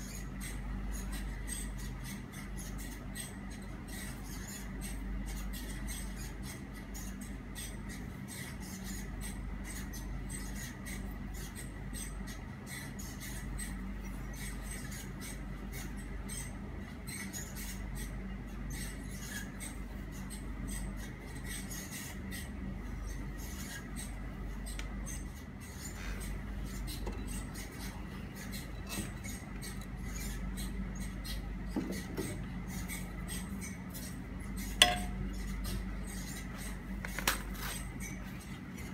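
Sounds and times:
steady low hum: 0.0s - 38.9s
fingers rubbing metal blade: 32.8s - 36.4s.

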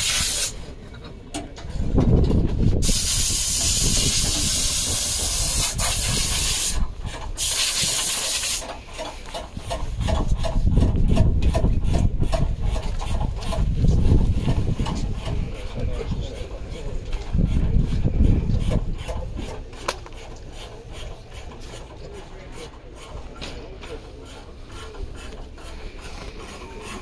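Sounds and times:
wind and tyre noise: 0.0s - 21.4s.

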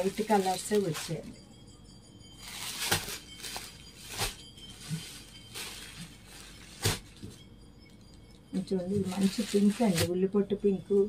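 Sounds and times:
packaging crinkling: 0.0s - 1.3s, 2.4s - 7.4s, 8.9s - 10.1s.

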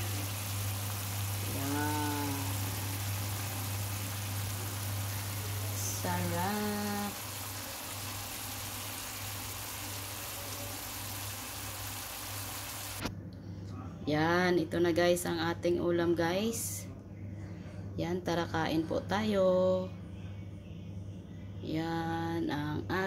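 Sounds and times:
sauce bubbling hiss: 0.0s - 13.1s.

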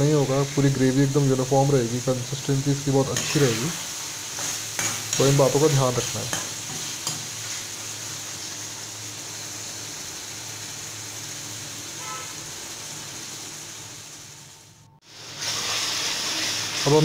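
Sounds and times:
vegetables sizzling in oil: 0.0s - 17.0s.

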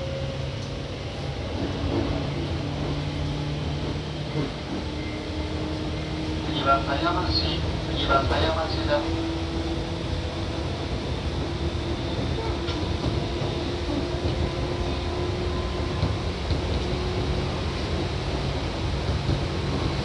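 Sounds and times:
train wheels rumbling: 0.0s - 20.0s.

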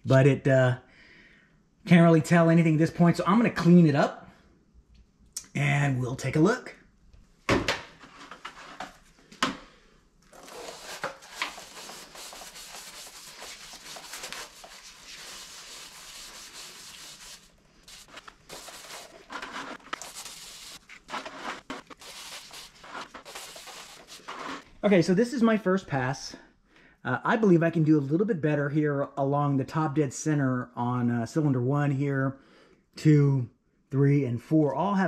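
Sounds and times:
cloth rubbing inside cylinder: 10.3s - 24.8s.

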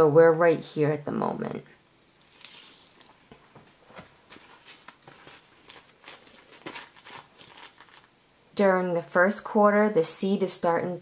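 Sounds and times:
plastic sheet protectors rustling: 2.2s - 8.1s.

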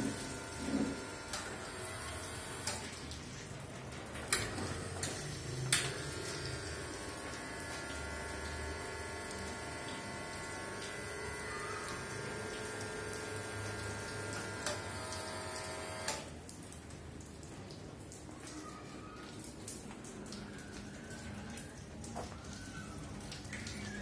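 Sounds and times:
espresso machine hum: 0.0s - 2.8s, 4.8s - 16.1s
water splashing into drip tray: 0.1s - 24.0s.

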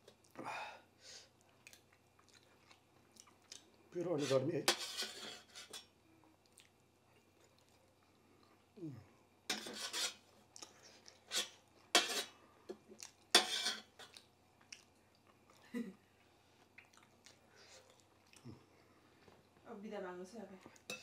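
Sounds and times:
metal spoon scraping a brass plate: 4.2s - 5.8s, 9.5s - 10.2s, 11.3s - 12.3s, 13.4s - 14.0s.

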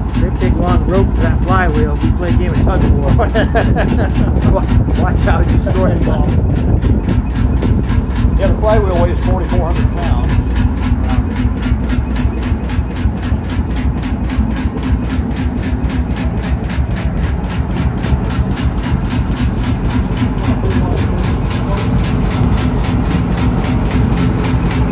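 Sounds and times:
stationary engine running with ticking: 0.0s - 24.9s.

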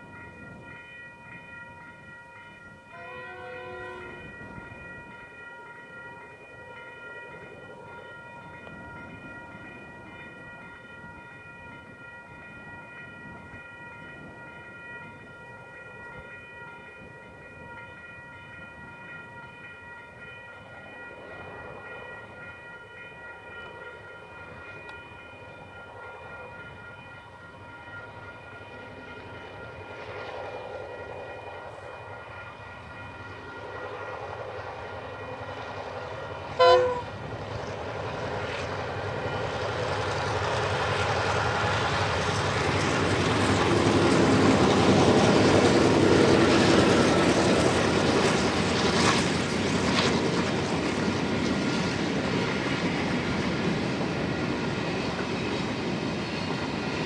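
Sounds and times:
diesel locomotives rumbling: 0.0s - 57.0s
train horn blast: 2.9s - 4.4s, 36.5s - 37.2s.

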